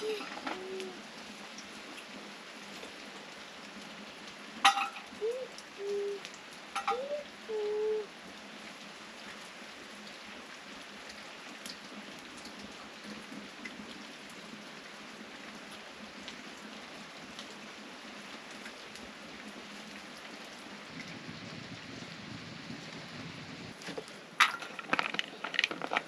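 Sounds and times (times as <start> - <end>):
small crackles: 23.7 - 26.0.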